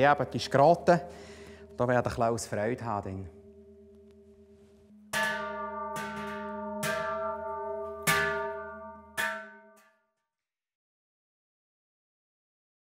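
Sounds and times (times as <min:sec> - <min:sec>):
cowbell ringing clang: 0:05.1 - 0:09.8.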